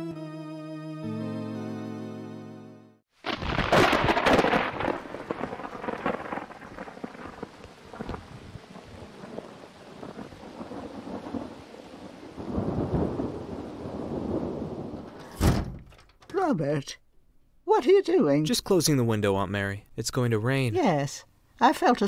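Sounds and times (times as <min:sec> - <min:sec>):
rain hissing: 0:03.2 - 0:15.2
thunder rumbling: 0:03.2 - 0:15.4.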